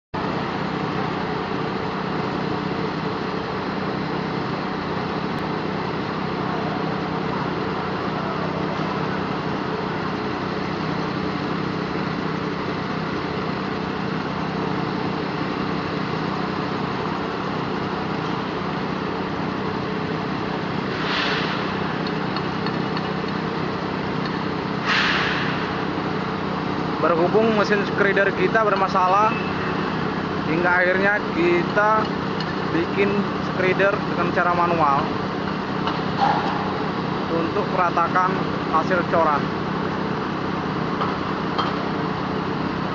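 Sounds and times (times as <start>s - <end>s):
short bursts of hiss: 24.8s - 25.5s.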